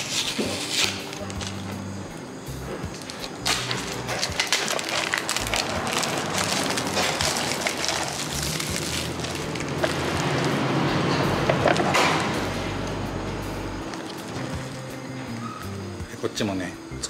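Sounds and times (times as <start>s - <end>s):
plastic wrap crinkling and tearing: 0.0s - 1.6s, 2.9s - 10.8s, 13.9s - 15.5s.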